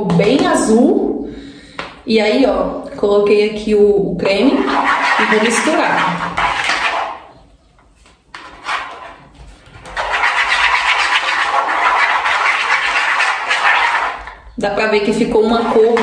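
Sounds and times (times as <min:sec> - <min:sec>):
scraping and squelching of thick cream: 0:04.2 - 0:16.0.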